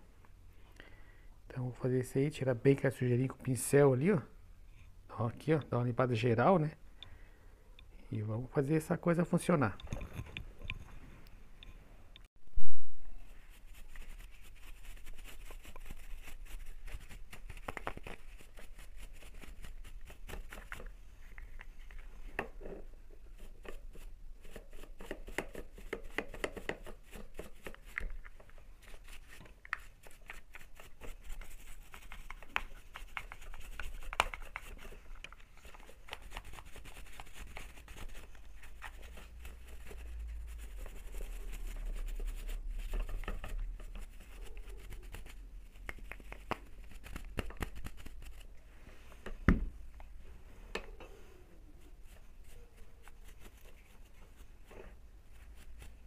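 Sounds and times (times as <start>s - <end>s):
paintbrush scrubbing metal: 13.3s - 20.9s, 23.2s - 28.2s, 28.8s - 48.5s, 51.6s - 56.0s.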